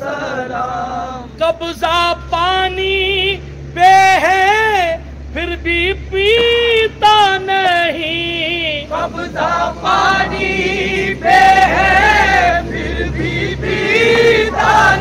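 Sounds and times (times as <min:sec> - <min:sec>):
men chanting in unison: 0:00.0 - 0:02.8, 0:06.2 - 0:15.0.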